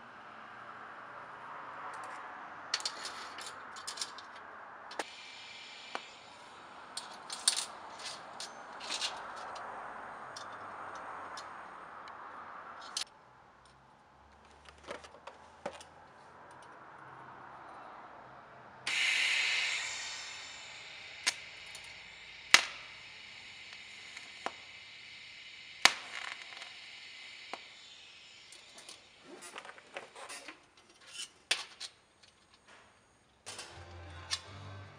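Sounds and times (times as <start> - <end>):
welding arc hissing: 4.9 - 9.7, 18.9 - 30.2.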